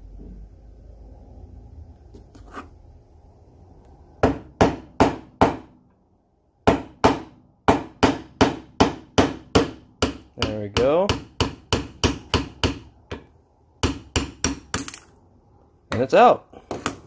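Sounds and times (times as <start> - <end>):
hammer tapping a punch: 6.7 - 14.9.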